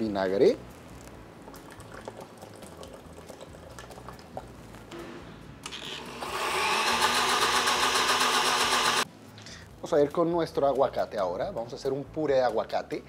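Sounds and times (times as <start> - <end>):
liquid trickling into blender jar: 1.4 - 4.5
blender motor running: 5.7 - 9.0.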